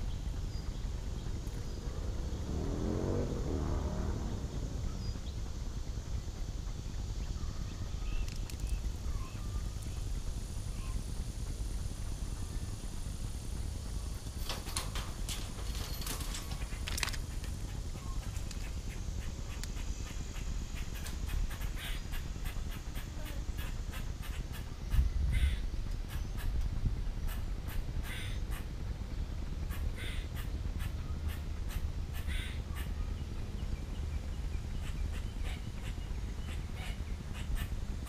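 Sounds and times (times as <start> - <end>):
low wind rumble on microphone: 0.0 - 38.0
bird giving short calls: 18.0 - 24.7, 25.3 - 26.6, 27.3 - 28.7, 29.7 - 33.0, 34.8 - 37.7.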